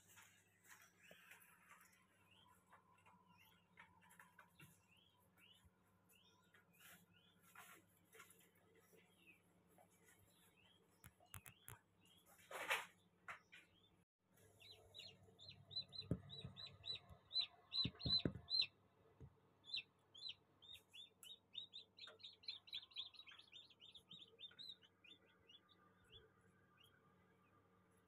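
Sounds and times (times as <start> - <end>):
chicks peeping: 0.2 - 18.8, 19.6 - 27.0
dull knocks: 17.8 - 18.7.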